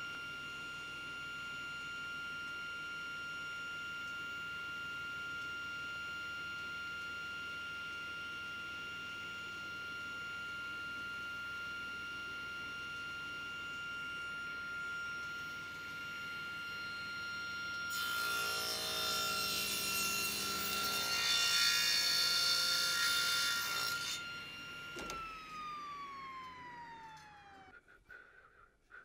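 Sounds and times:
table saw running: 0:11.7 - 0:27.9
saw blade cutting wood: 0:17.9 - 0:27.6.

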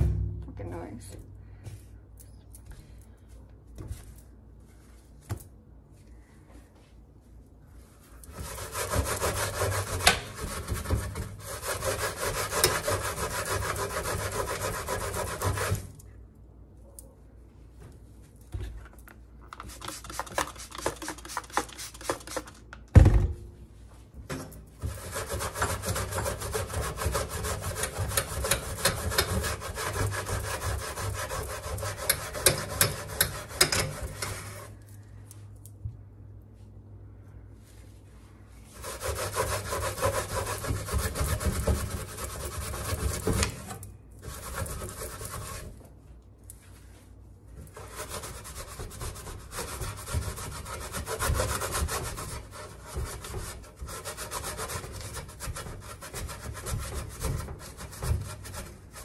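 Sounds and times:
loud thump: 0:00.0 - 0:00.7.

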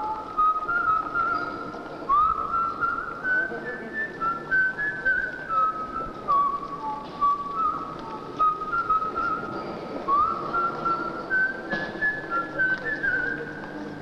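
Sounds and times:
quiet musical accompaniment: 0:00.0 - 0:14.0
whistled melody: 0:00.0 - 0:14.0.

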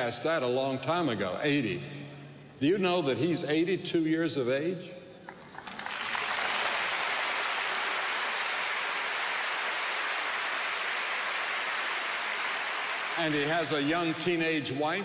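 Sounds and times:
large crowd applauding: 0:05.3 - 0:14.7.

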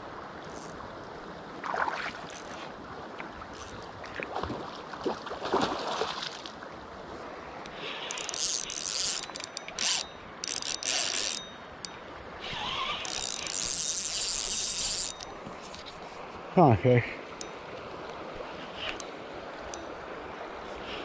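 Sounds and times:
fishing reel drag buzzing: 0:00.4 - 0:00.8, 0:02.3 - 0:02.6, 0:03.5 - 0:03.8, 0:07.7 - 0:15.9.

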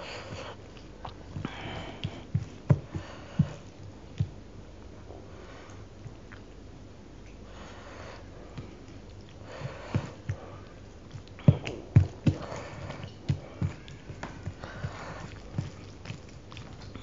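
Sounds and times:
hand squishing wet food: 0:00.0 - 0:07.5, 0:08.2 - 0:17.0.

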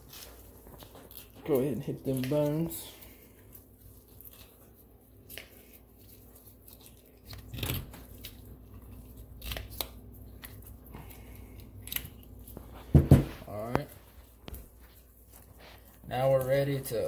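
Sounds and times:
tin snips crunching through bone: 0:06.6 - 0:12.6.

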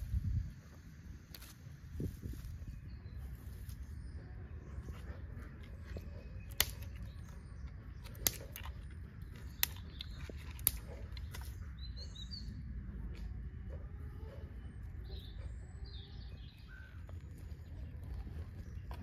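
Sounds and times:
steady low rumble: 0:00.0 - 0:19.0
birds chirping: 0:02.2 - 0:19.0
sharp clicks: 0:08.0 - 0:11.5.

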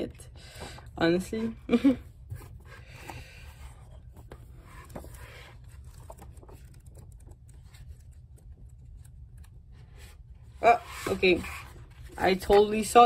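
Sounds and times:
pages flipping: 0:02.3 - 0:10.2.

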